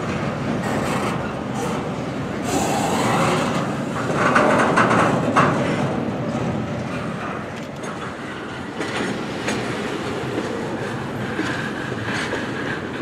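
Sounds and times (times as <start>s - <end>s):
freight train wheels clattering: 0.0s - 13.0s.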